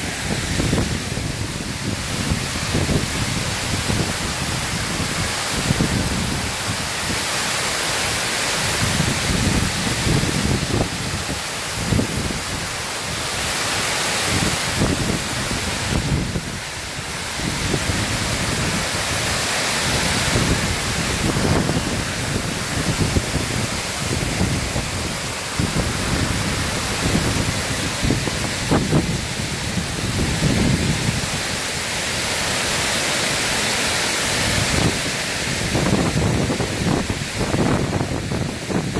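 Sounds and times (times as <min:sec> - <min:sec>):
water pouring over spillway: 0:00.0 - 0:38.9
wind buffeting microphone: 0:14.3 - 0:31.5, 0:34.5 - 0:38.9.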